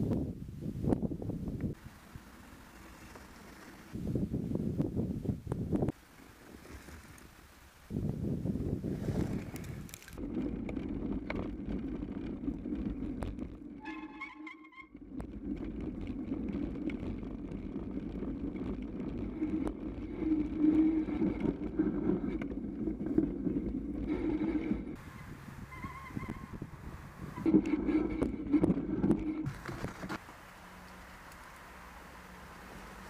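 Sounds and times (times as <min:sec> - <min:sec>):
wind on microphone: 0:00.0 - 0:02.3, 0:02.9 - 0:13.8, 0:15.1 - 0:30.2
bike tyre rolling through snow: 0:00.1 - 0:33.0
bike rattling: 0:01.7 - 0:04.2, 0:05.6 - 0:07.9, 0:08.6 - 0:30.4
brief high squeal: 0:13.8 - 0:14.9.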